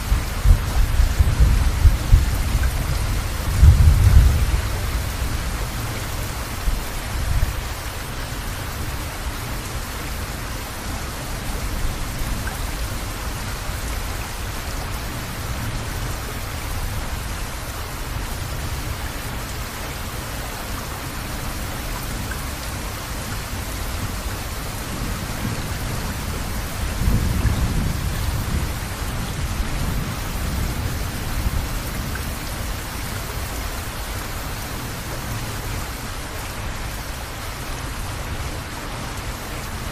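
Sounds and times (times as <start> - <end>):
steady rain: 0.0 - 39.9
low rolls of thunder: 0.2 - 5.3, 24.9 - 32.2.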